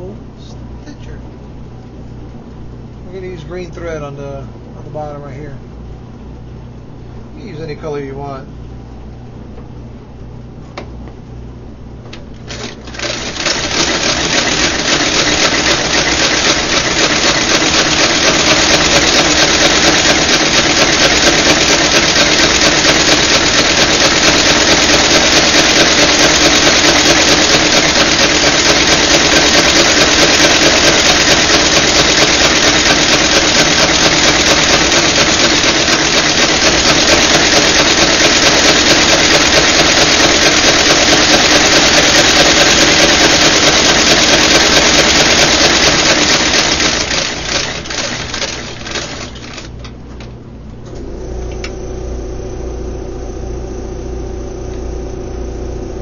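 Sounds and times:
stitching machine clattering: 0:12.5 - 0:49.7.

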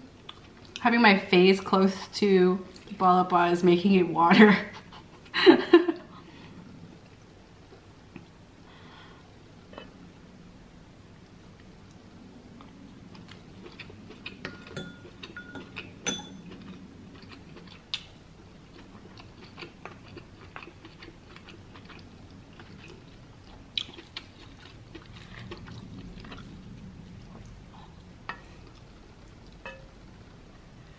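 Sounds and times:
person chewing and smacking: 0:12.6 - 0:29.6.

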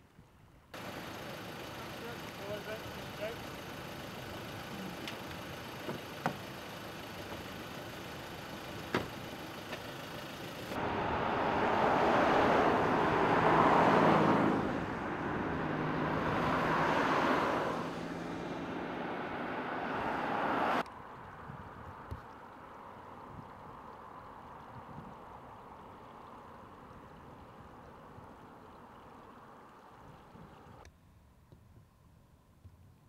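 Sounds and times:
cars driving past: 0:00.8 - 0:21.2.

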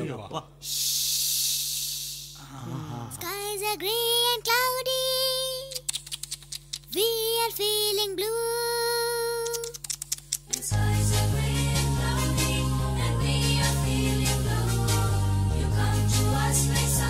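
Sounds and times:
quick clicks: 0:05.6 - 0:07.0, 0:09.4 - 0:10.7.

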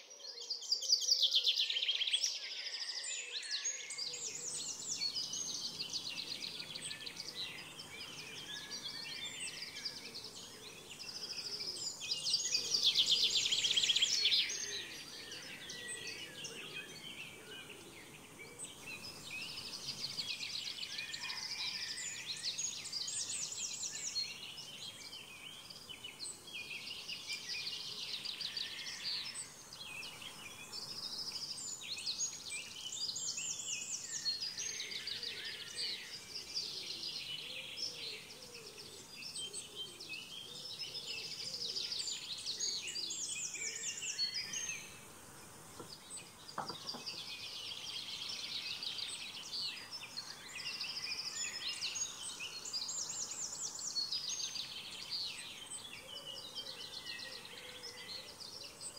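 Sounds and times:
songbirds chirping and trilling: 0:00.0 - 0:58.9
steady background hiss: 0:43.1 - 0:50.2.

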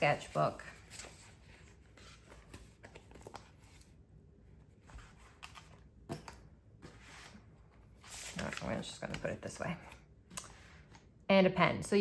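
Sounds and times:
paper pages rustling: 0:00.1 - 0:04.0, 0:04.6 - 0:10.0.

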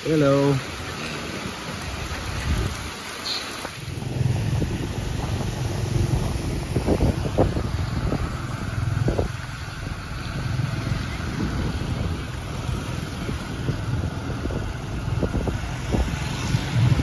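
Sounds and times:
motorcycle engine running: 0:03.9 - 0:17.0.

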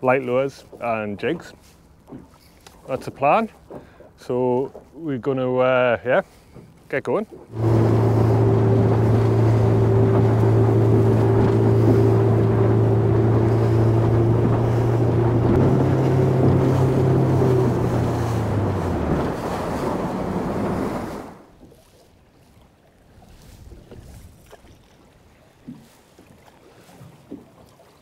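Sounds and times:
outboard motor running: 0:06.3 - 0:21.6
rushing water: 0:07.4 - 0:28.0
wind buffeting microphone: 0:07.5 - 0:21.5.

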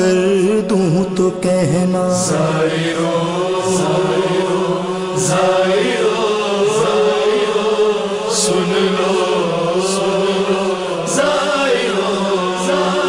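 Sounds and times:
man chanting lament: 0:00.0 - 0:06.2.

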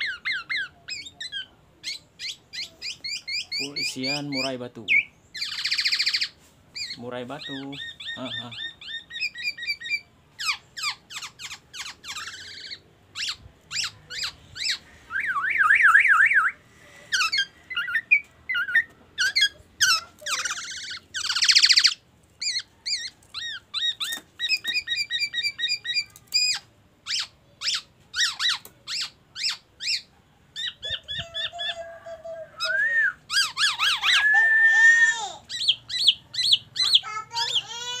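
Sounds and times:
bird singing whistles and trills: 0:00.0 - 0:16.6, 0:20.3 - 0:31.8, 0:32.6 - 0:37.0
wavering bird whistle: 0:13.2 - 0:16.6, 0:32.6 - 0:37.0.

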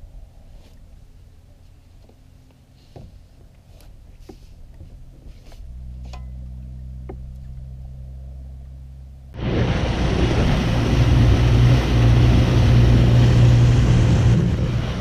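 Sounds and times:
boat motor hum: 0:00.0 - 0:15.0
motorboat running with water rush: 0:00.0 - 0:15.0.

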